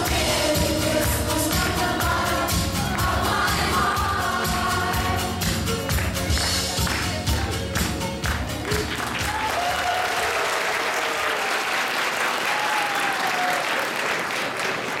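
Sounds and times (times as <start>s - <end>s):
audience applauding: 5.8s - 15.0s.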